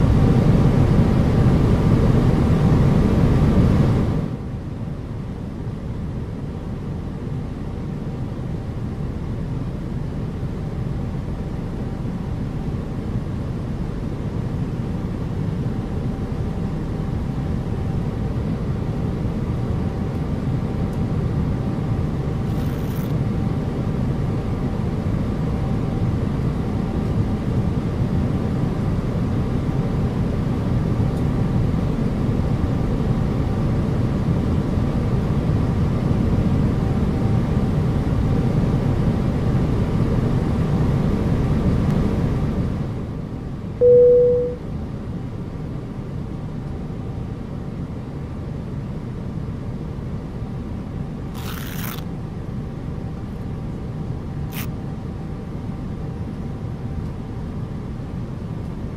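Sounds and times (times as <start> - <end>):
short loud beep: 43.8 - 44.6.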